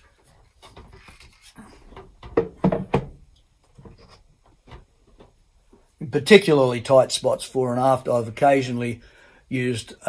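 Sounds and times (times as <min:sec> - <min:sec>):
sharp wooden knocks: 0:02.2 - 0:03.2.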